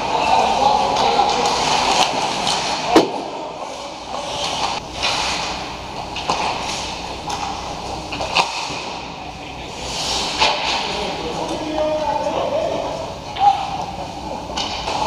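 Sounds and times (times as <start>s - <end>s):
skates scraping on ice: 0.0s - 5.6s, 9.8s - 11.1s
stick hitting puck: 8.1s - 9.0s.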